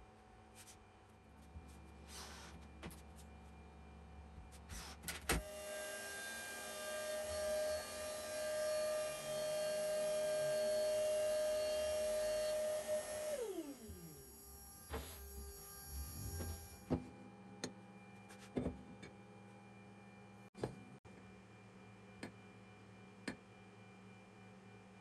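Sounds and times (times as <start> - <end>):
electric motor whining: 5.4 - 16.8.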